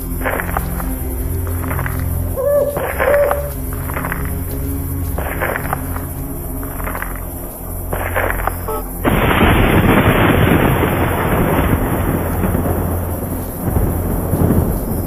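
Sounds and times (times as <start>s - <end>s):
thunder clap rolling: 8.3s - 15.0s.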